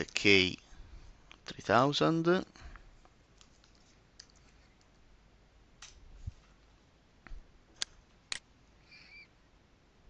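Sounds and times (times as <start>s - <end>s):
computer keyboard and mouse clicks: 3.4s - 5.0s.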